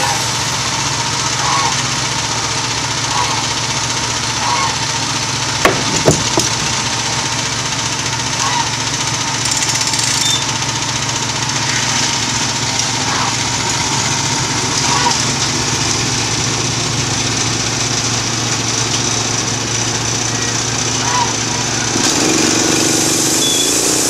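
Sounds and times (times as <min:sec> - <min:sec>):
small gasoline engine running: 0:00.0 - 0:24.0
band blade sawing log: 0:05.6 - 0:07.4, 0:21.9 - 0:24.0.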